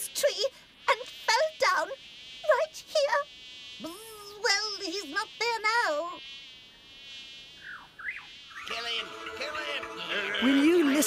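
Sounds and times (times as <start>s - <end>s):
cartoon insect buzzing: 0.0s - 11.0s
wordless whining voice: 3.8s - 6.2s
short falling whistles: 7.6s - 8.7s.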